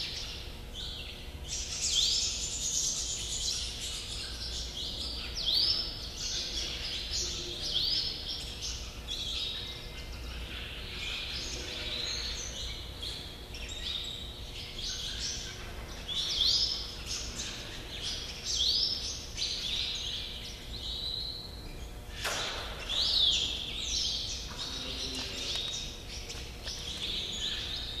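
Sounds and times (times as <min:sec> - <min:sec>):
small birds chirping: 0:00.0 - 0:28.0
steady low hum: 0:00.0 - 0:28.0.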